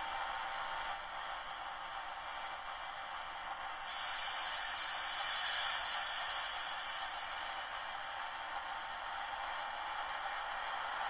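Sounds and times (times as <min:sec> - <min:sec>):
model locomotive engine hiss: 0:03.7 - 0:10.8
higher hiss: 0:03.8 - 0:08.9.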